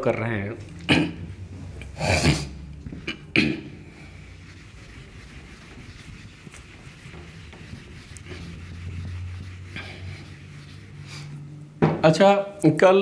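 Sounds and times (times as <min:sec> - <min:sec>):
duster rubbing on whiteboard: 0:04.0 - 0:11.6.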